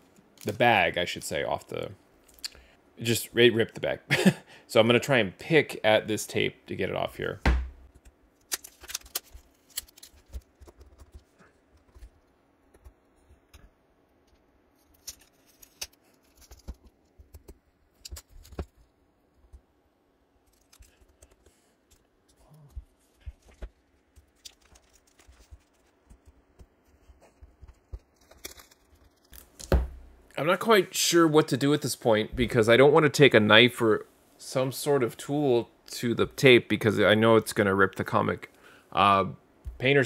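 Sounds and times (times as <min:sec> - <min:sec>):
plastic crinkling and clicking: 0:07.9 - 0:18.9.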